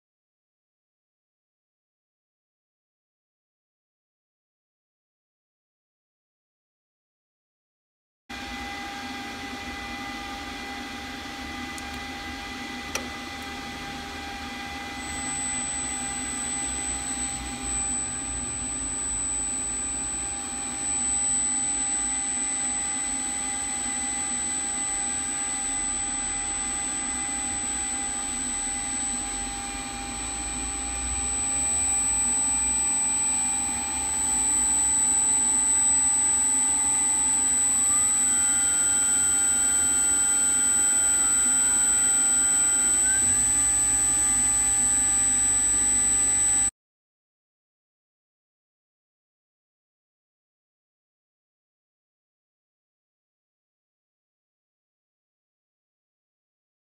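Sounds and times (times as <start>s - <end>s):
electric motor whine and hum: 8.3s - 46.7s
whine rising in pitch: 8.3s - 46.7s.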